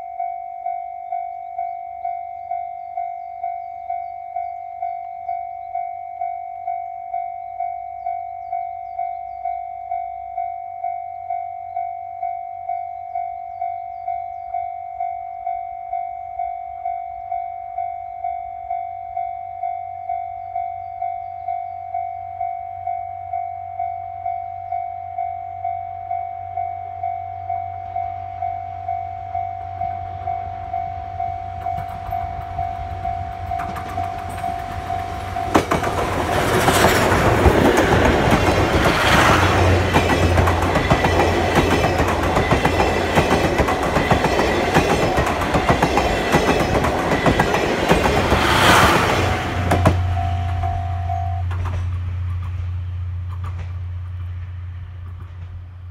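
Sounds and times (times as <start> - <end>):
level crossing signal dinging: 0.0 - 51.6
steam train passing: 27.4 - 55.9
wheels clattering over rails: 31.6 - 50.8, 51.4 - 55.6.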